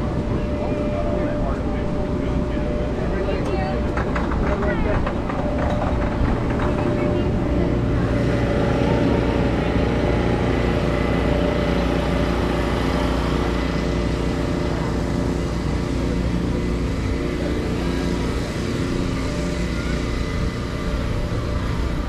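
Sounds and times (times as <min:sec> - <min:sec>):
steady engine drone: 0:00.0 - 0:22.0.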